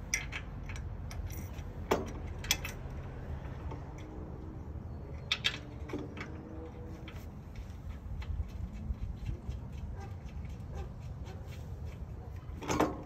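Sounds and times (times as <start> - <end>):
metal bolt hardware clinking: 0.0 - 3.0.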